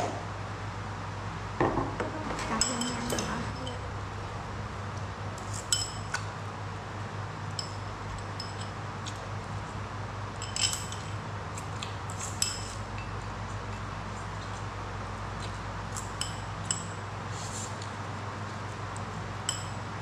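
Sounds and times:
steady low hum: 0:00.0 - 0:20.0
chopsticks clinking on ceramic bowls: 0:02.4 - 0:03.9, 0:07.6 - 0:09.2, 0:10.4 - 0:11.2, 0:16.0 - 0:17.0, 0:19.5 - 0:19.8.

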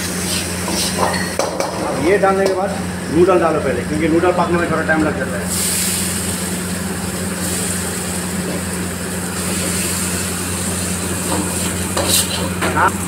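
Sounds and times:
kitchen background roar: 0:00.0 - 0:13.0
low mechanical hum: 0:00.0 - 0:13.0
ladle stirring in steel wok: 0:10.6 - 0:12.6.

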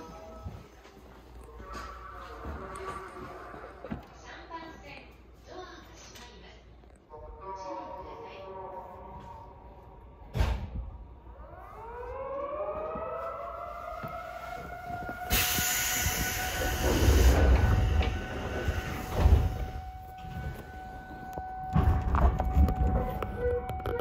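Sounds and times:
siren wailing: 0:11.0 - 0:24.0.

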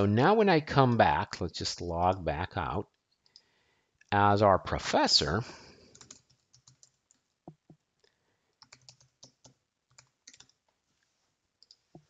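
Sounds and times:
faint keyboard typing: 0:02.8 - 0:04.1, 0:05.8 - 0:12.0.

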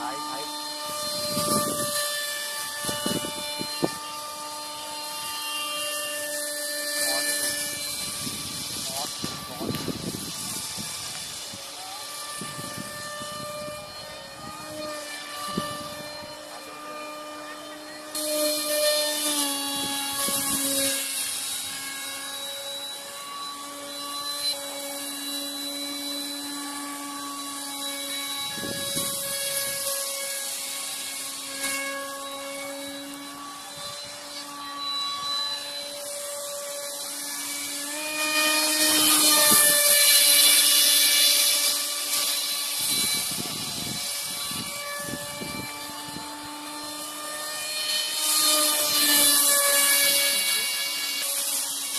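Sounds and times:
model jet motor whining: 0:00.0 - 0:51.9.

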